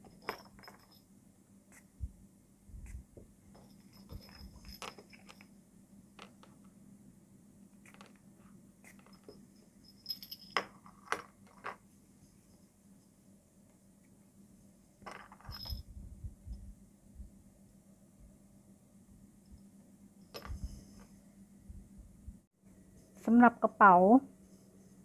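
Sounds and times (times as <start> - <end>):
keyring and bell jingling: 9.1 - 10.6, 15.4 - 15.9.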